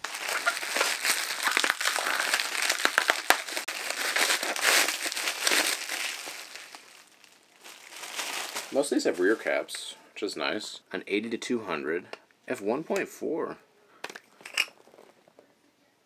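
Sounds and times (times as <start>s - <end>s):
bubble wrap crinkling: 0.0s - 9.6s.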